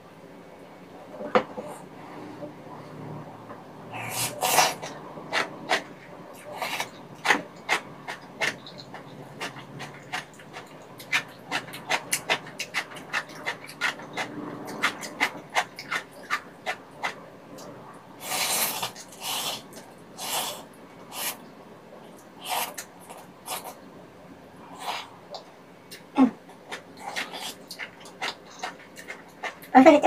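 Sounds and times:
slurping noodles: 3.9 - 5.8, 18.2 - 21.4
wet chewing clicks: 4.0 - 21.4, 24.8 - 29.8.

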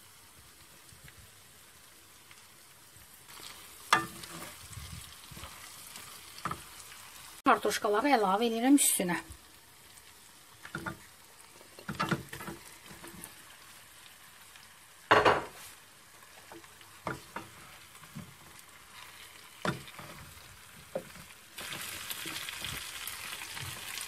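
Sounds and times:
food sizzling in butter: 0.0 - 24.0
wooden spatula scraping pan: 3.4 - 6.7, 16.4 - 18.4, 19.0 - 22.7
potatoes knocking into pan: 19.6 - 20.3.

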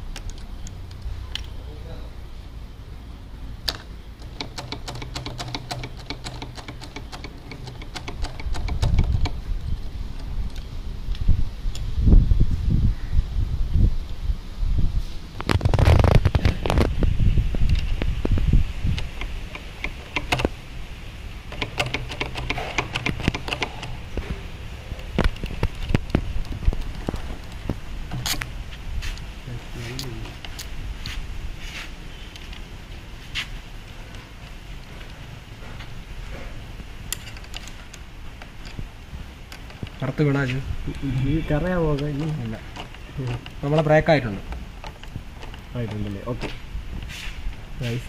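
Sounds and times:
hand tool clicks: 3.6 - 9.4, 18.9 - 20.6, 21.5 - 24.2, 25.2 - 28.5.

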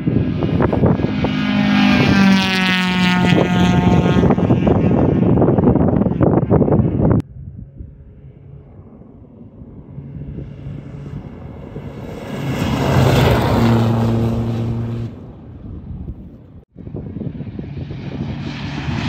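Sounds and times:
rally car engine passing: 0.1 - 7.2, 8.1 - 16.2.

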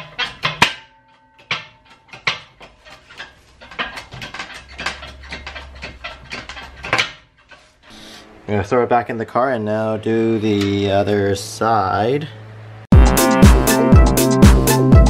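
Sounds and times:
sharp metal clank with ringing: 0.0 - 2.5.

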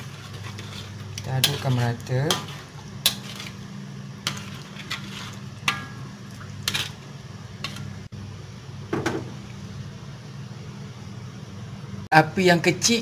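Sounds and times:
metal ladle scraping a wok: 0.0 - 8.1.

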